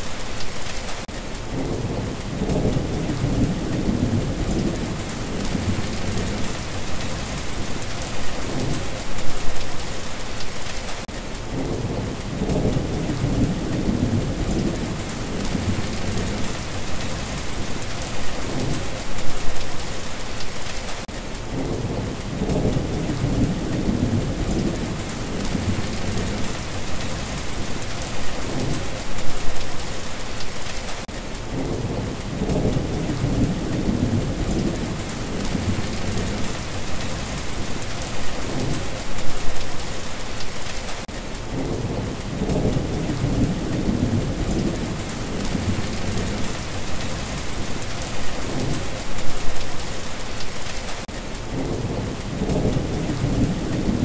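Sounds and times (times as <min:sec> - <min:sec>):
steady rain: 0:00.0 - 0:54.0
rolling thunder: 0:01.5 - 0:09.0, 0:11.5 - 0:19.0, 0:21.5 - 0:29.6, 0:31.5 - 0:39.0, 0:41.5 - 0:49.6, 0:51.5 - 0:54.0.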